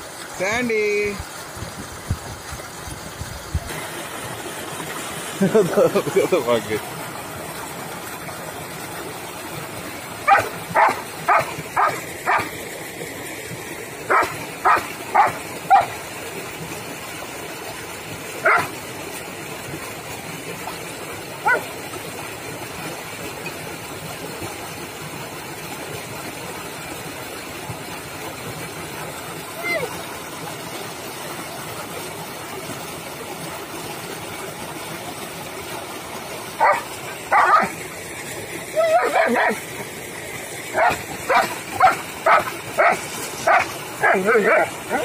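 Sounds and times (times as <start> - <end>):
water rushing through a channel: 0.0 - 45.0
dog barking: 10.3 - 12.5, 14.1 - 16.0, 18.4 - 18.7, 21.4 - 21.7, 36.6 - 37.7, 38.8 - 39.6, 40.8 - 45.0.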